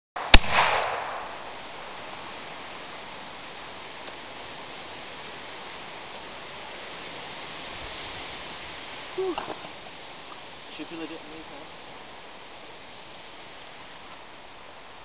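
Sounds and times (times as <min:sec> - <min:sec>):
loud gunshot with echo: 0:00.2 - 0:01.5
steady outdoor hiss: 0:00.2 - 0:15.0.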